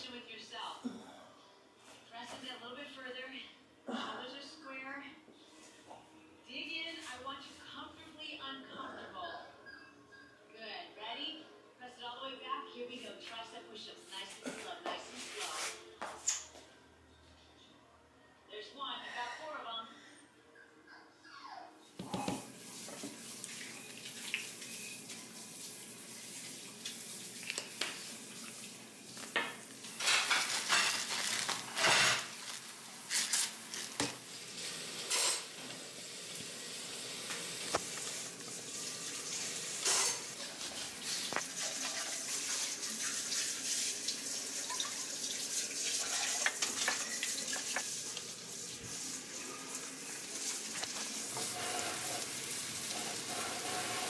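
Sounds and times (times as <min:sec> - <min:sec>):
food sizzling in a pan: 0:22.4 - 0:54.0
utensils scraping a mixing bowl: 0:51.3 - 0:54.0.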